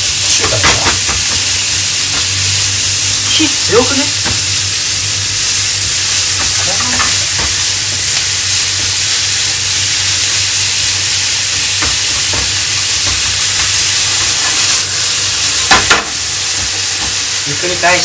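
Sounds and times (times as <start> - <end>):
clatter in the pan: 0.0 - 2.4, 6.1 - 9.3, 11.4 - 17.3
meat sizzling in a frying pan: 0.0 - 18.0.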